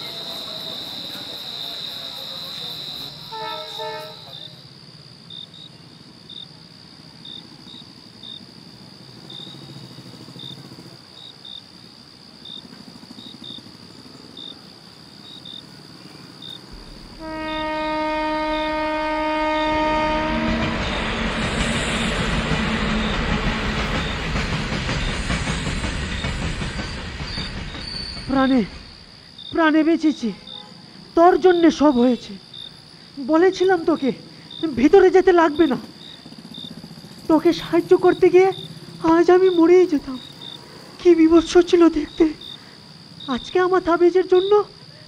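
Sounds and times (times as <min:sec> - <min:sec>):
crickets chirping: 0:00.0 - 0:45.0
train horn: 0:03.1 - 0:04.6, 0:17.1 - 0:21.0
train wheels rumbling: 0:12.6 - 0:30.3, 0:31.0 - 0:43.6.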